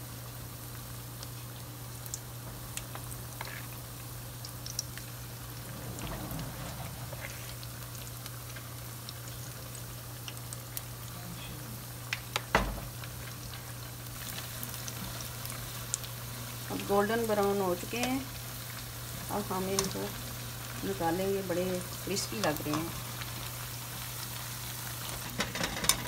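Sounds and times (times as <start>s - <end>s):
deep-frying in hot oil: 0.0s - 26.0s
low hum: 3.9s - 9.2s.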